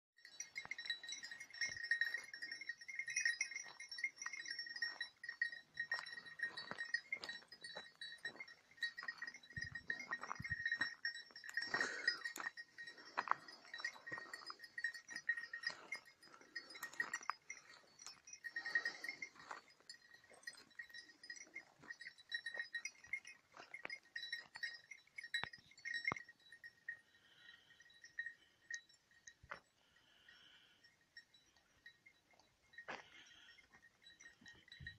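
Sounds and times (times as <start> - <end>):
bells ringing: 0.2 - 34.9.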